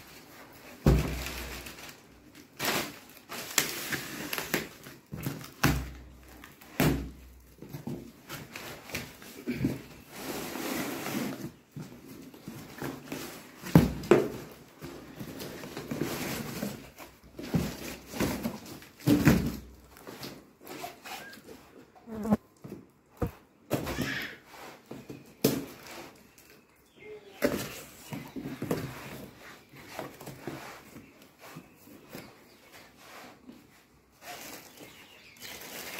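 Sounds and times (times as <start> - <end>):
knocks and thuds of a box: 0.8 - 1.4, 13.6 - 15.0, 15.8 - 19.8
cardboard rustling and scraping: 7.5 - 22.3, 27.4 - 35.9.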